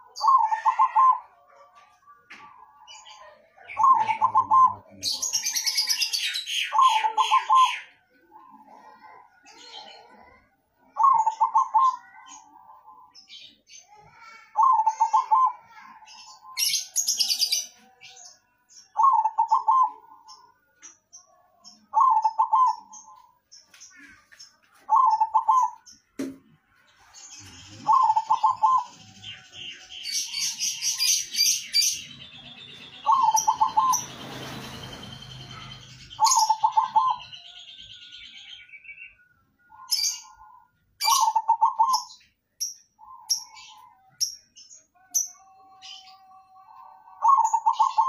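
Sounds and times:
dove cooing: 0.0s - 1.4s, 3.7s - 13.0s, 14.1s - 17.6s, 19.0s - 20.3s, 21.9s - 23.2s, 24.9s - 25.8s, 27.7s - 29.4s, 30.3s - 37.4s, 39.7s - 42.2s, 45.4s - 48.0s.

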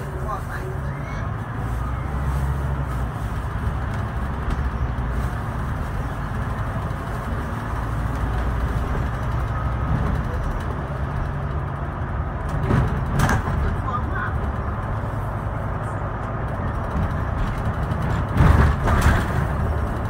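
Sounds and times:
diesel engine drone: 0.0s - 20.0s.

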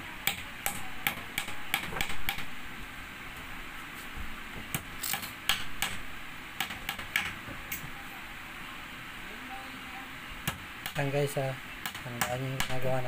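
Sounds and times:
hammer tapping nails into wood: 0.3s - 2.5s.

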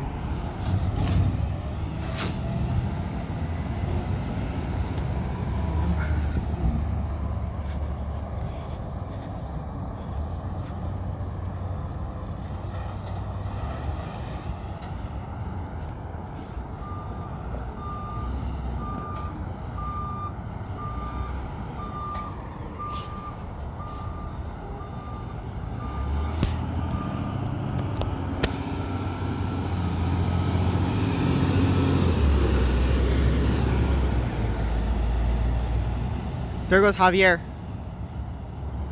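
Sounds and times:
truck reverse alarm beeping: 16.7s - 27.8s.

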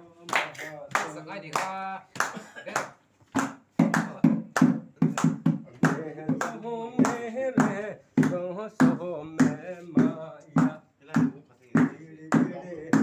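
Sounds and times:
rhythmic hand claps: 0.0s - 13.0s
person singing along: 3.8s - 13.0s.

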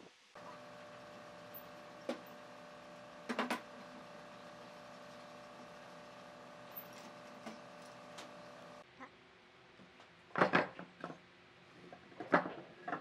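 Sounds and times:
electric motor humming: 0.4s - 8.8s.

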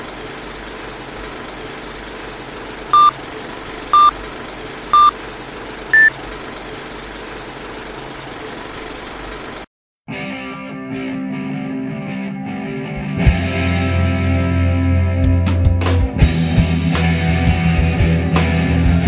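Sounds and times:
film projector whirring: 0.0s - 9.7s
countdown beeps: 3.0s - 3.2s, 3.9s - 4.2s, 5.0s - 5.2s, 5.9s - 6.2s.

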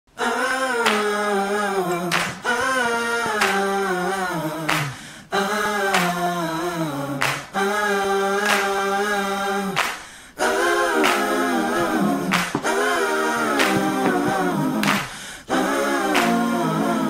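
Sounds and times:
person singing long held notes: 0.1s - 17.0s.

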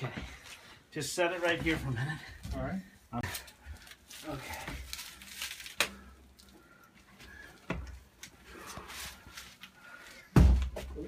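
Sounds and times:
heavy thumps: 10.3s - 11.0s.

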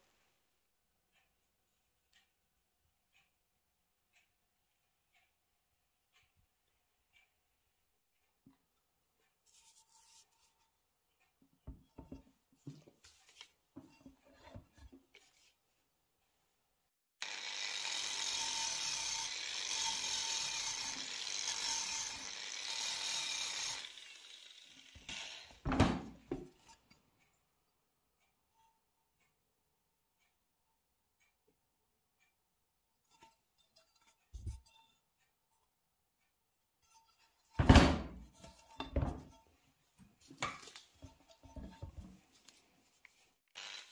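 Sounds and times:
wire wheel brush scrubbing metal: 17.2s - 25.6s, 38.2s - 43.9s.

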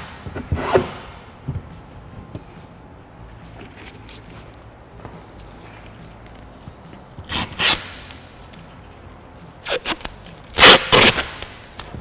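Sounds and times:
masking tape ripping off roll: 7.2s - 8.2s, 9.6s - 11.9s.

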